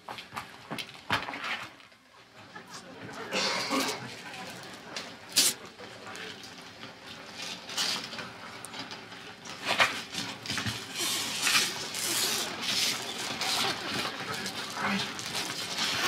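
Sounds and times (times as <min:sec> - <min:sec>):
shuffling and clatter: 0:06.2 - 0:16.0
velcro ripping: 0:10.9 - 0:16.0.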